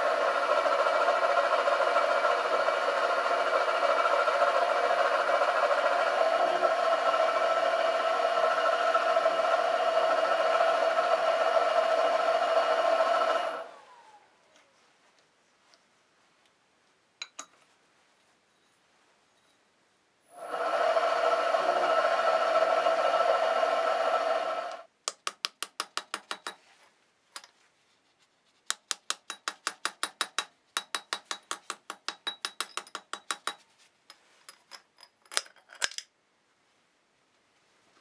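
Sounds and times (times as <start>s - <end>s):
machine tool motor running: 0.0s - 13.9s, 20.4s - 24.9s.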